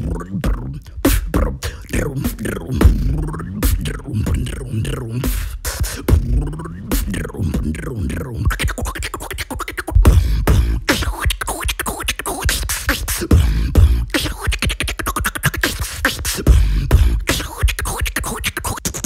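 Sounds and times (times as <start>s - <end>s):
beatboxing: 0.0s - 19.0s.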